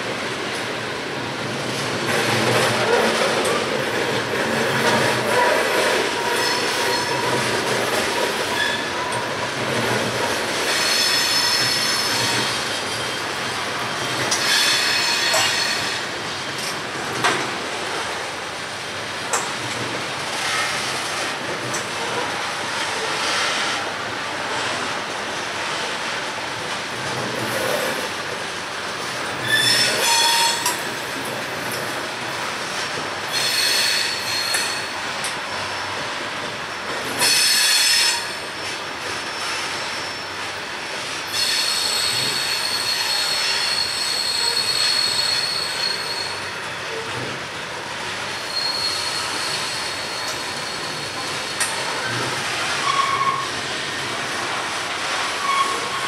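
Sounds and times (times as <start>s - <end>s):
train wheels rumbling on rails: 0.0s - 56.0s
high-pitched wheel squeal: 14.4s - 16.0s, 29.4s - 30.8s, 41.3s - 46.4s, 48.4s - 51.7s, 52.8s - 53.6s, 55.4s - 56.0s.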